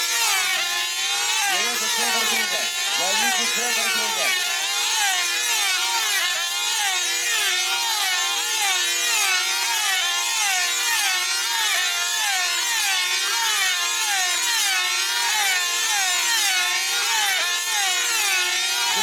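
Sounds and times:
model aircraft engines whining: 1.3s - 5.1s.

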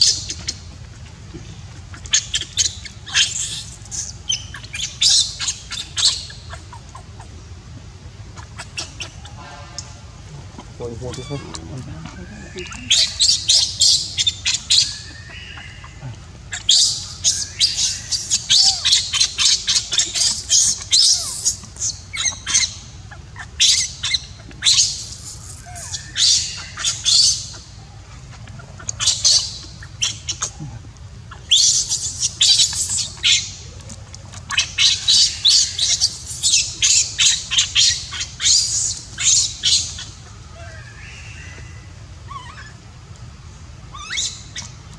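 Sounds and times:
baby monkey screaming: 1.9s - 7.4s, 8.4s - 9.9s, 10.8s - 33.7s, 34.3s - 42.8s, 43.9s - 44.9s.

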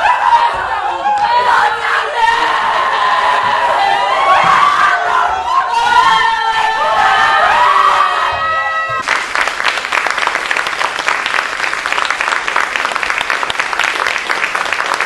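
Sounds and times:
audience applauding: 9.0s - 15.0s.

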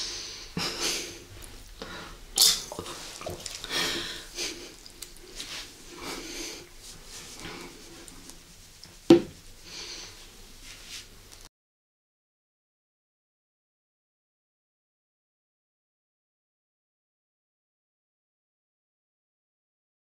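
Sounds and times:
chewing: 2.4s - 5.4s.

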